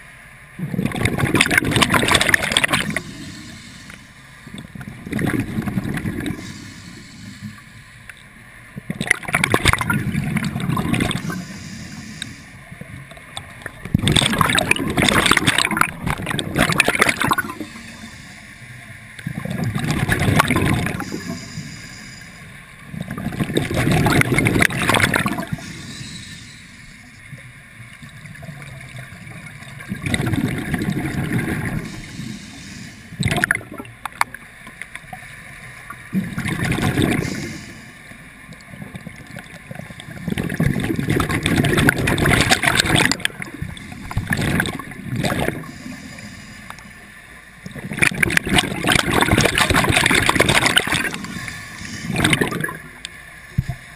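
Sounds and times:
diver exhaling bubbles underwater: 0.6s - 3.5s, 4.5s - 6.8s, 8.8s - 12.0s, 13.7s - 18.1s, 19.2s - 21.5s, 22.9s - 26.6s, 28.3s - 32.4s, 33.2s - 33.9s, 36.1s - 37.7s, 38.8s - 46.0s, 47.7s - 53.0s.

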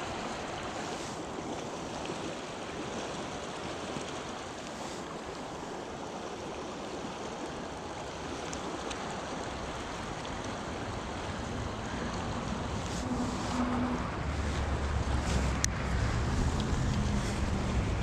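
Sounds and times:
river water rushing: 0.0s - 18.0s
wind rumble on microphone: 7.4s - 18.0s.

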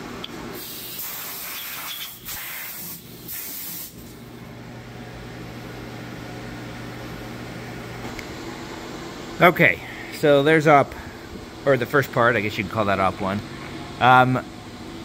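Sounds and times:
compressed air blow gun hissing: 0.6s - 4.0s
steady low hum: 3.0s - 15.0s.

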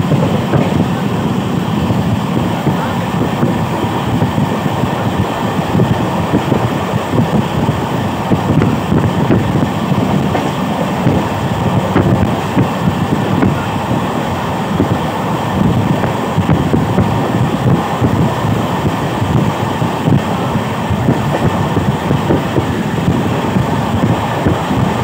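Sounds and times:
train wheels rumbling on rail: 0.0s - 25.0s.

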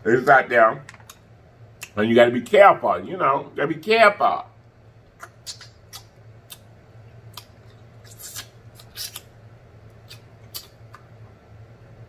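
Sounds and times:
low steady hum: 0.0s - 12.0s
wet lip smacks and sucking clicks: 5.2s - 11.2s.

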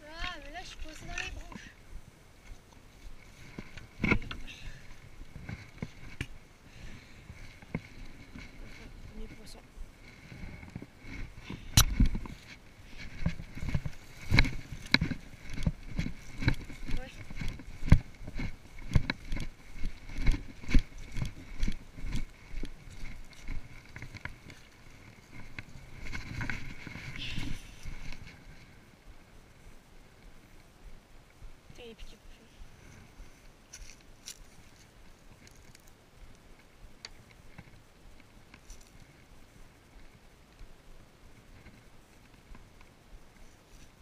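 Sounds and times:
footsteps on dry grass: 2.4s - 28.8s, 32.6s - 36.9s.

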